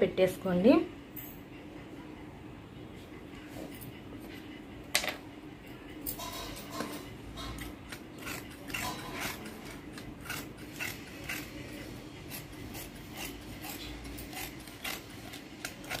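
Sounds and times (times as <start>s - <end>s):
scissors snipping cloth: 7.6s - 11.6s, 12.3s - 16.0s.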